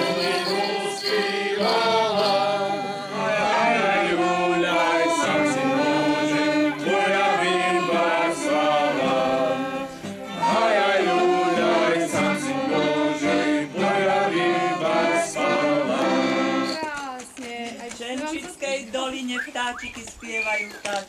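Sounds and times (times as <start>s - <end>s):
group singing a carol: 0.0s - 16.8s.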